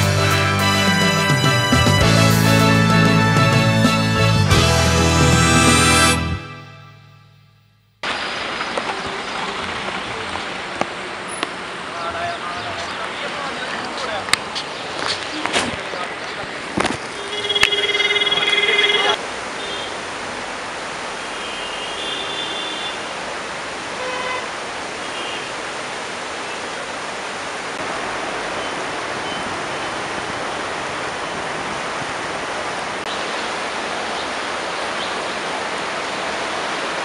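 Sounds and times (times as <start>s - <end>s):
rushing river water: 8.0s - 37.0s
vehicle horn honking: 17.1s - 20.0s, 21.4s - 23.1s, 24.0s - 24.5s, 25.1s - 25.5s.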